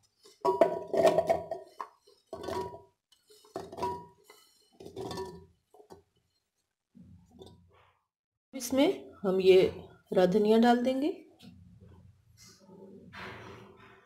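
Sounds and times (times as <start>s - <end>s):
fruit pieces clattering into metal jar: 0.3s - 4.2s, 4.8s - 5.5s.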